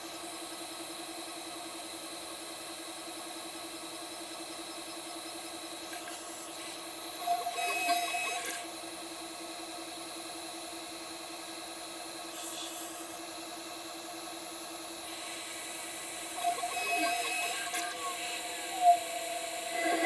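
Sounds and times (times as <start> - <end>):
router spindle whining: 15.1 - 20.0
end mill cutting aluminium: 16.1 - 20.0.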